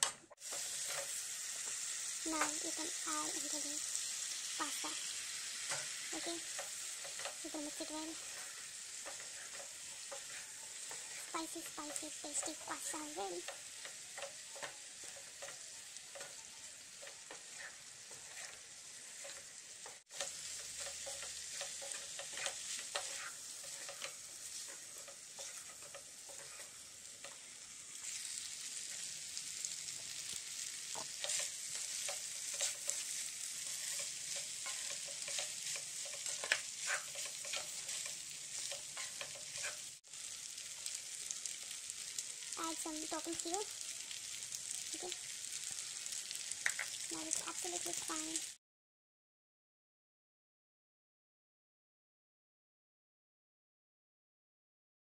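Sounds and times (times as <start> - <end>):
food sizzling in a pan: 0.0 - 48.6
spatula scraping a pan: 0.4 - 42.3.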